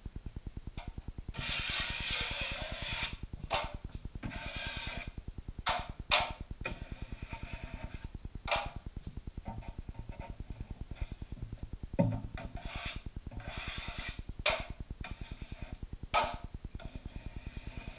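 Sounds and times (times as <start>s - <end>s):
taping knife scraping mud: 1.3s - 5.2s
fast low pulsing: 5.1s - 13.4s.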